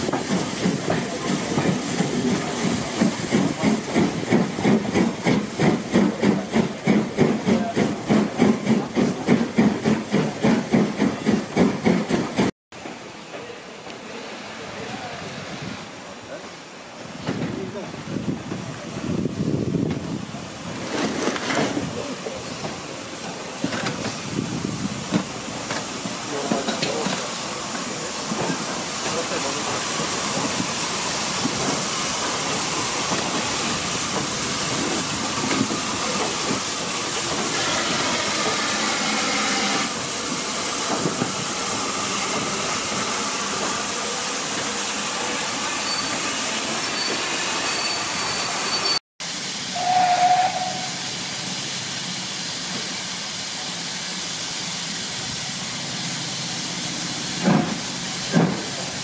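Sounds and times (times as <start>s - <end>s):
steam hissing: 0.0s - 12.5s, 21.7s - 59.0s
steam whistle: 49.7s - 51.1s.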